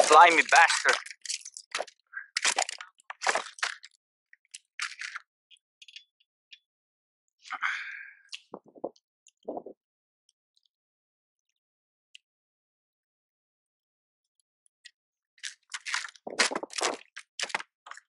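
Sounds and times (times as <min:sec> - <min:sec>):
handling plastic kayak: 0:00.0 - 0:05.2, 0:15.4 - 0:18.0.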